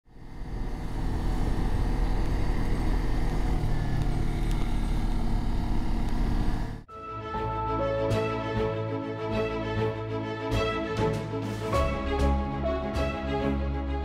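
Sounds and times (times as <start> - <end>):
motorcycle engine running: 0.1 - 6.8.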